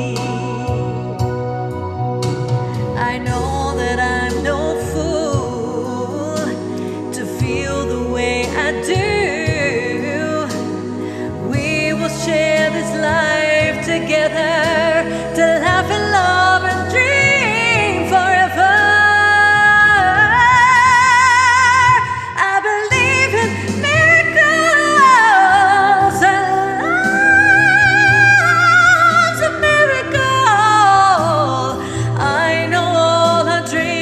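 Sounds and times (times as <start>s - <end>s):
woman singing a soulful ballad: 0.0s - 34.0s.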